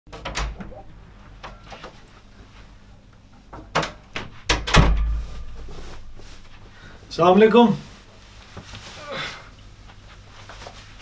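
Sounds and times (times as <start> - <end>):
door shutting with a thud: 0.1 - 0.8, 3.6 - 6.2.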